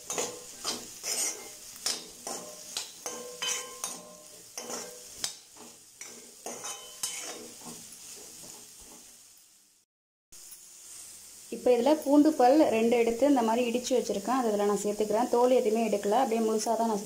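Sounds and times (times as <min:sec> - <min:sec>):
metal ladle scraping a pan: 0:00.0 - 0:09.2
potatoes sizzling in oil: 0:00.0 - 0:09.8, 0:10.4 - 0:17.0.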